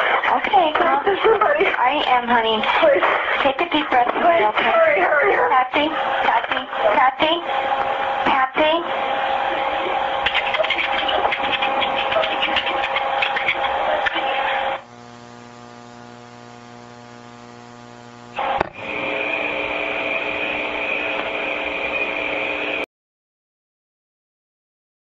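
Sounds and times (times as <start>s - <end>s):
telephone line hiss and crackle: 0.0s - 6.9s, 9.3s - 22.8s
buzzing hum: 0.0s - 22.8s
steady line tone: 5.9s - 22.8s.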